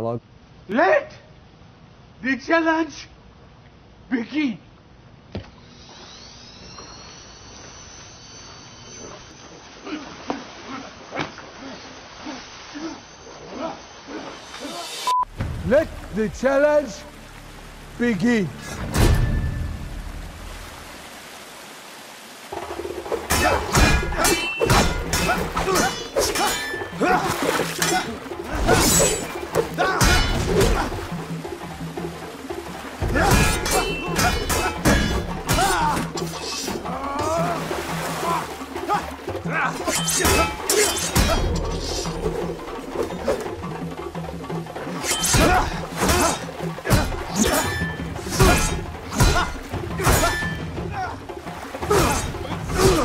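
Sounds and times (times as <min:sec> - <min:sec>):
film score music: 0:14.0 - 0:21.4, 0:22.4 - 0:53.0
sharp weapon strikes: 0:23.3 - 0:31.0, 0:33.1 - 0:36.8, 0:39.8 - 0:42.2, 0:45.0 - 0:50.6
people shouting: 0:23.3 - 0:31.3, 0:33.0 - 0:42.5, 0:44.9 - 0:53.0.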